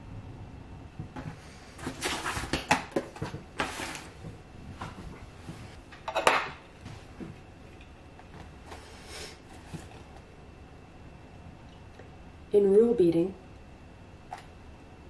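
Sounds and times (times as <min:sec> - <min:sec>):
objects rustling on a desk: 0:01.0 - 0:07.5, 0:08.2 - 0:10.3
book rustling: 0:01.8 - 0:05.8.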